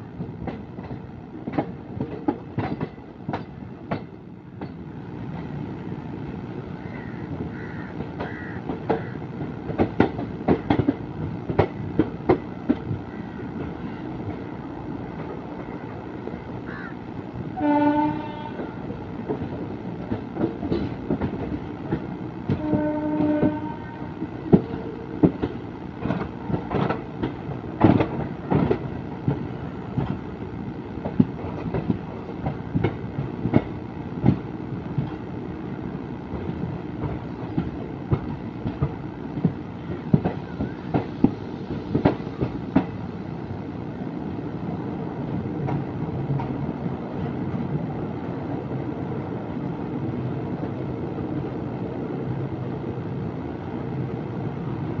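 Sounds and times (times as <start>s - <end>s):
train rumble: 0.0s - 55.0s
train wheels clattering on track: 0.1s - 5.6s, 6.8s - 14.6s, 17.7s - 35.3s, 36.3s - 43.3s, 45.2s - 47.8s.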